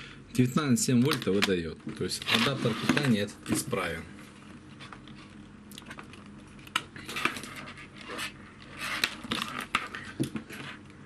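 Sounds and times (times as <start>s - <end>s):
cables handled on a desk: 1.0s - 3.8s, 4.6s - 10.9s.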